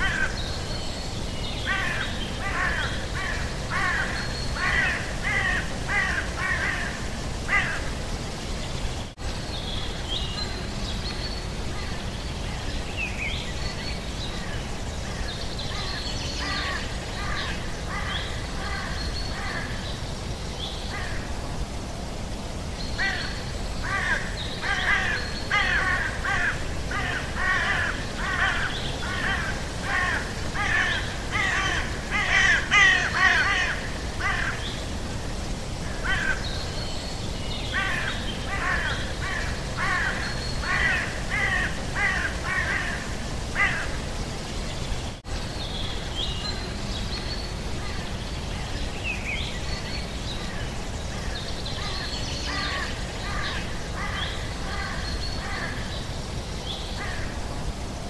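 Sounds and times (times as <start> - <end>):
birds cawing: 0.0 - 0.6, 1.6 - 8.0, 15.0 - 19.9, 20.9 - 21.3, 23.0 - 34.8, 35.8 - 36.6, 37.7 - 44.1, 51.2 - 56.0.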